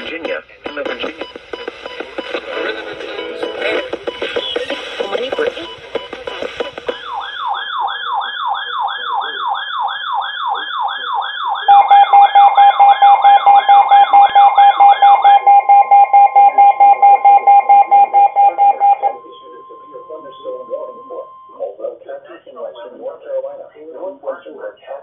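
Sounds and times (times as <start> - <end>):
electronic siren sweeping: 7.0 - 21.8
steady alert tone: 11.7 - 21.8.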